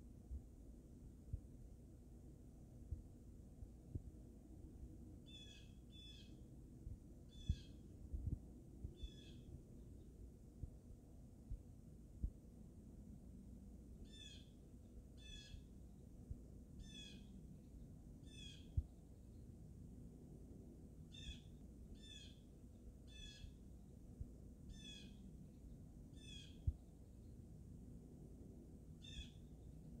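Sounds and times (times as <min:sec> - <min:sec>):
faint low rumble: 0:00.0 - 0:30.0
blue jay calling: 0:05.3 - 0:06.4, 0:07.3 - 0:07.8, 0:09.0 - 0:09.5, 0:14.0 - 0:14.6, 0:15.2 - 0:15.7, 0:16.8 - 0:17.4, 0:18.2 - 0:18.8, 0:21.1 - 0:23.6, 0:24.7 - 0:25.3, 0:26.1 - 0:26.6, 0:29.0 - 0:29.6.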